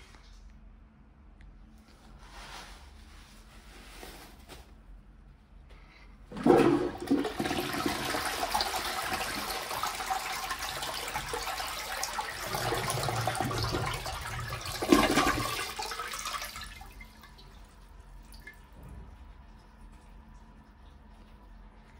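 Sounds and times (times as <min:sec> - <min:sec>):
toilet flushing: 0:06.3 - 0:21.9.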